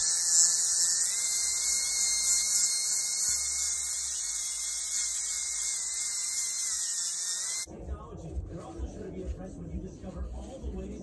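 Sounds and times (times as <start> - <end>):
sanding disc whining against metal: 0.0 - 7.7.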